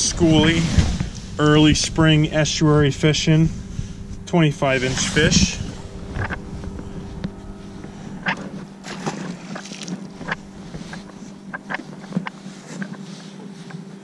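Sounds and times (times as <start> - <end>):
electric trolling motor hum: 0.0 - 14.0
light water splashes: 8.8 - 11.2.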